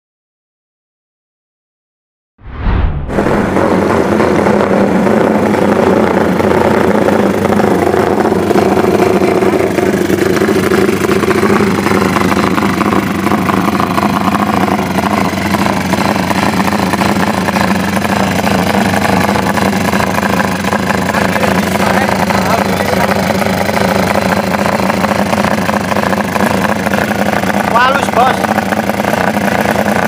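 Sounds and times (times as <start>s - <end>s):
single-cylinder engine running: 3.1s - 30.0s.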